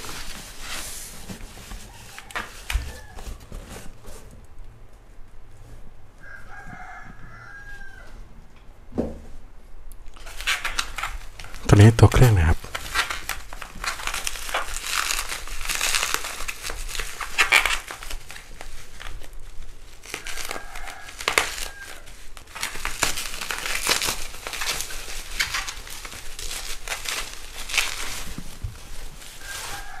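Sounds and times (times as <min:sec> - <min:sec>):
plastic packaging crinkling: 0:10.2 - 0:30.0.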